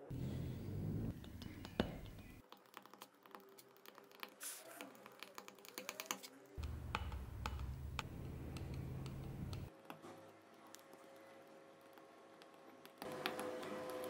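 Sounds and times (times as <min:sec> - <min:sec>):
low hum: 0:00.0 - 0:01.2, 0:06.6 - 0:09.7.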